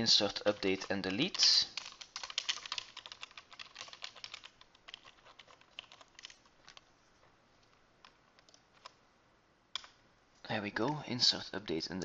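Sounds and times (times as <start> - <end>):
faint keyboard typing: 0.0 - 9.0, 9.7 - 10.0.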